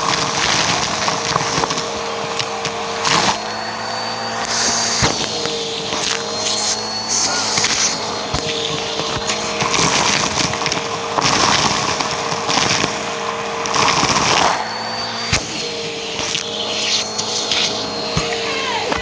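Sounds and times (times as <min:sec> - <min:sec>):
debris rattling up hose: 0:00.0 - 0:19.0
vacuum cleaner running: 0:00.0 - 0:19.0.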